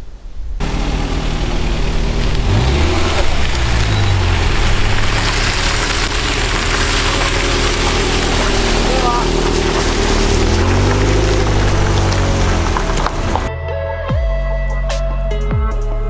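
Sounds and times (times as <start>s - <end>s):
car driving past on gravel: 0.6s - 13.5s.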